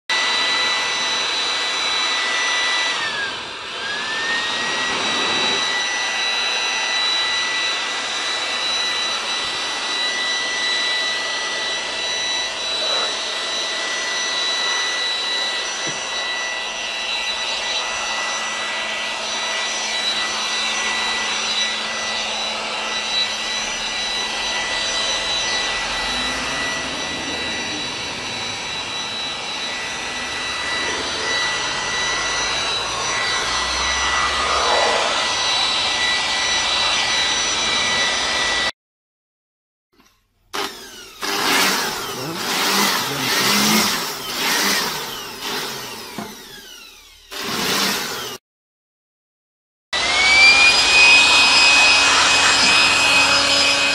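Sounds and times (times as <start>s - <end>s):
electric blower motor whine: 0.1s - 38.7s, 40.0s - 48.4s, 50.0s - 53.9s
rushing air: 30.7s - 36.3s.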